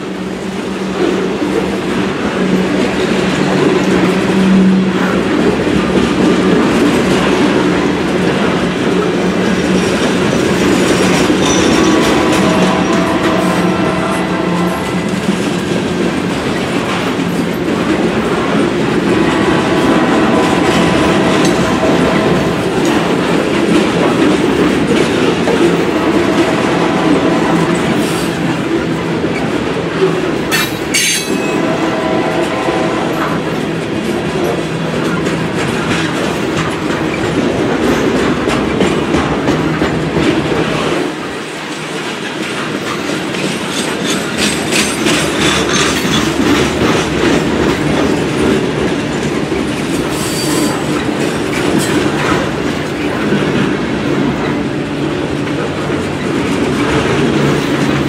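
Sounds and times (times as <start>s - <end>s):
train wheels rumbling on rail: 0.0s - 58.0s
clicking over rail joints: 1.0s - 58.0s
wheel squeals: 9.8s - 13.4s.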